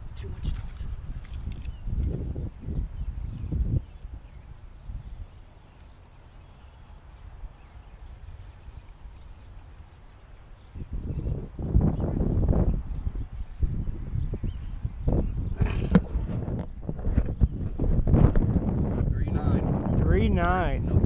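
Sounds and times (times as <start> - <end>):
low rumbling on microphone: 0.0 - 5.4, 10.8 - 21.0
insects chirring: 0.0 - 21.0.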